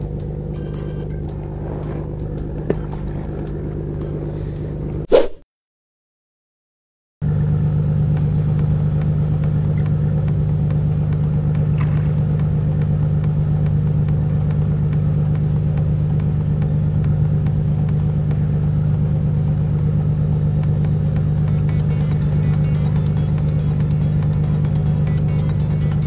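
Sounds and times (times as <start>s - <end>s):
engine running with low hum: 0.0s - 5.1s, 7.2s - 26.0s.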